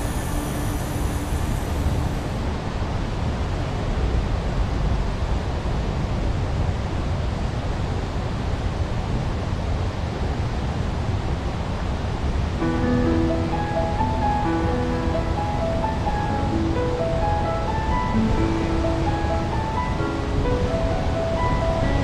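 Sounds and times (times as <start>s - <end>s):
waterfall rushing over rock: 0.0s - 6.1s.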